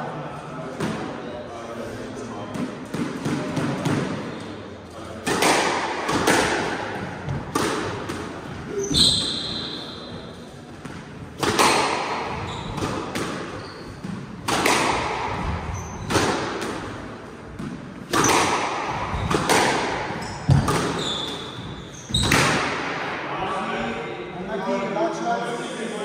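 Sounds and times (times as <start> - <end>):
squash ball cracking off rackets: 5.2 - 8.4, 10.8 - 23.0.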